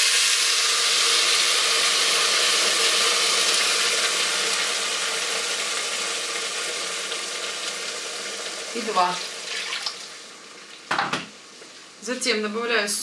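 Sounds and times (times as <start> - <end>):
water running and splashing: 8.7 - 10.2.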